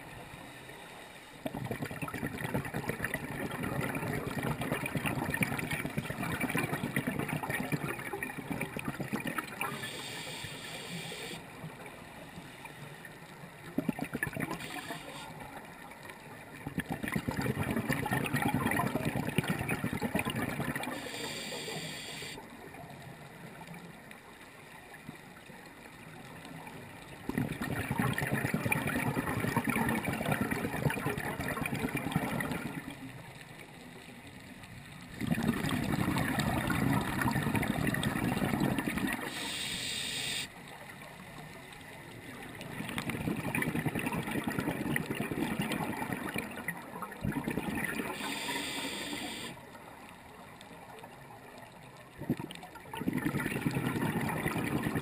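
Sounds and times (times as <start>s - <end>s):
water bubbling and gurgling: 1.4s - 55.0s
higher hiss: 9.8s - 11.4s, 14.6s - 15.4s, 20.9s - 22.4s, 39.3s - 40.5s, 48.1s - 49.6s.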